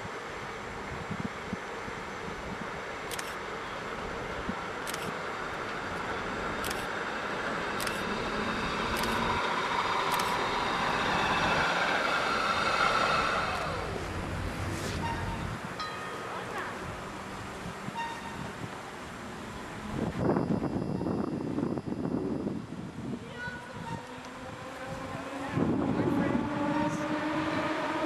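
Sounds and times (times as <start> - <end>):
tram running on track: 0.0 - 28.0
sharp clicks: 6.6 - 6.9, 7.8 - 8.1, 10.1 - 10.4
squealing whine: 8.3 - 15.6, 20.0 - 22.6.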